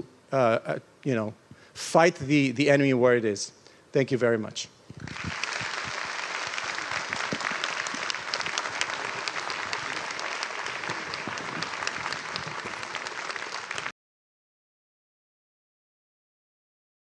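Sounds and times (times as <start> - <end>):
audience applauding: 5.0 - 13.9.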